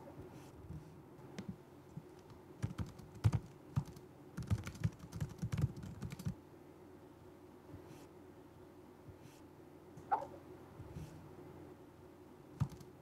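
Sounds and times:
typing on laptop keyboard: 2.2 - 6.4, 12.6 - 12.9.

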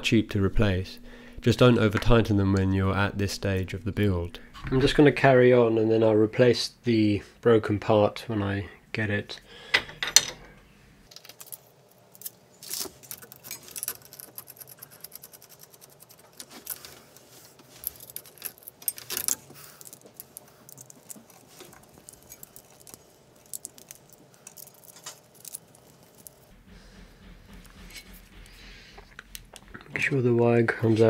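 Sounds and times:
small parts clinking and clicking: 11.1 - 26.5.

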